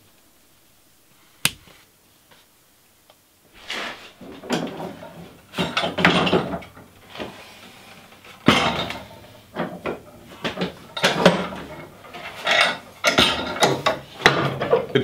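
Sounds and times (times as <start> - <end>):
wooden knocks and rubbing: 3.7 - 15.0.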